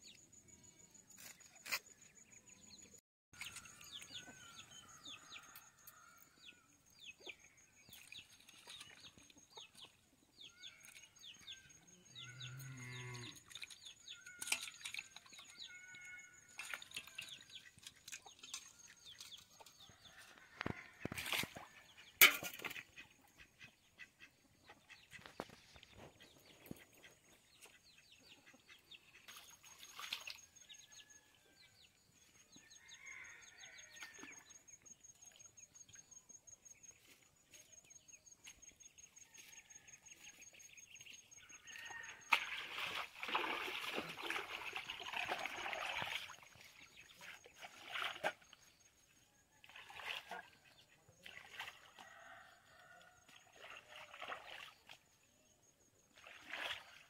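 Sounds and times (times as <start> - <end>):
water splashing in a steel bowl: 7.8 - 10.0, 13.4 - 20.1, 21.0 - 23.1, 29.3 - 30.9, 41.6 - 48.8, 49.6 - 55.2, 56.0 - 57.0.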